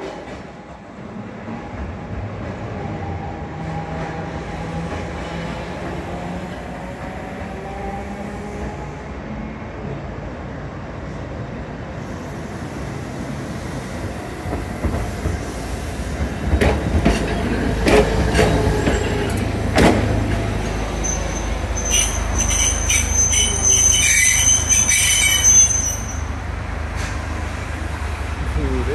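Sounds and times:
tram passing: 0.0 - 28.9
wheels squealing on curve: 20.7 - 26.3.

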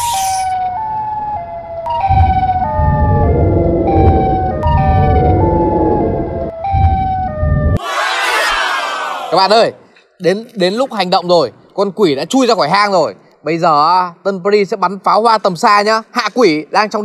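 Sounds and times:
two-tone siren: 0.0 - 7.8
deep rumble: 1.9 - 7.8.

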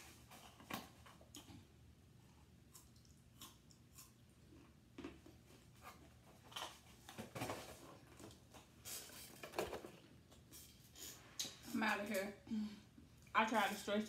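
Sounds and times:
cardboard boxes knocking and rustling: 7.0 - 8.2.

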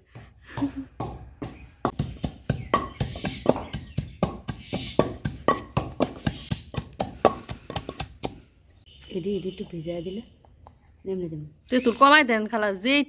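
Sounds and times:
wooden pestle pounding in mortar: 0.1 - 8.4.

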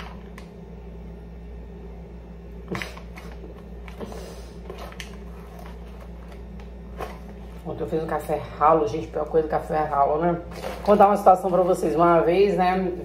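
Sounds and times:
foil package crinkling: 2.7 - 7.7.

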